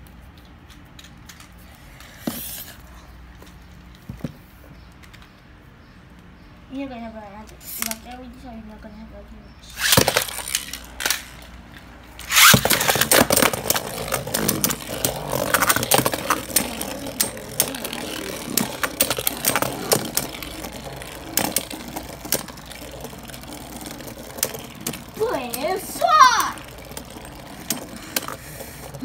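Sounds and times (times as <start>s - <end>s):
tops whirring on plastic: 9.7s - 11.5s, 12.2s - 29.0s
spinning tops launched: 9.7s - 11.6s, 12.2s - 28.4s.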